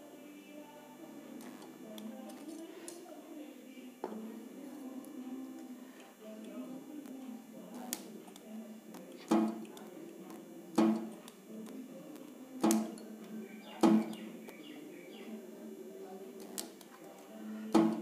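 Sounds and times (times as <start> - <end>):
low steady hum: 0.0 - 18.0
spot welder snap and buzz: 1.4 - 3.1, 6.3 - 13.2, 13.8 - 14.6, 16.4 - 18.0.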